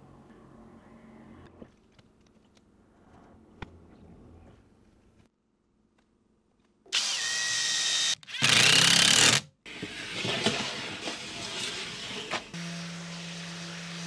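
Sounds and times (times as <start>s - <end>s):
power tool running: 6.9s - 9.4s, 12.6s - 14.0s.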